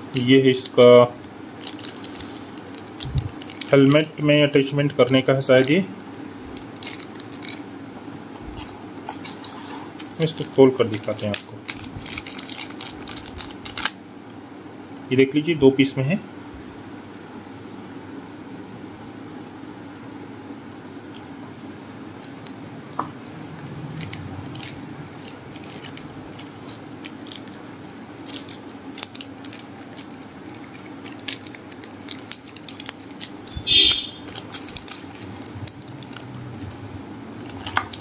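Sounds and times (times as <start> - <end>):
plastic bag rustle: 1.6 - 4.1, 8.4 - 13.9, 23.2 - 33.5, 34.2 - 36.8, 37.4 - 38.0.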